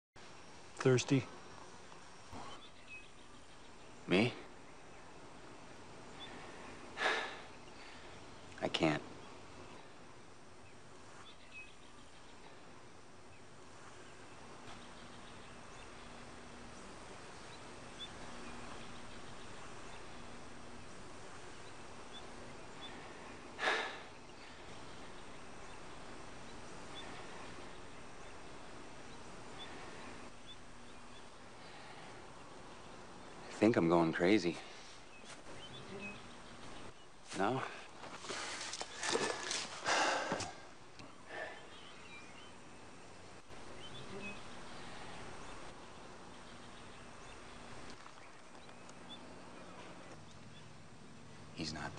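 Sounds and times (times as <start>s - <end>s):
jungle ambience: 0.2s - 51.9s
steady background hiss: 0.2s - 51.9s
faint bird chirps: 10.6s - 37.9s, 41.0s - 51.9s.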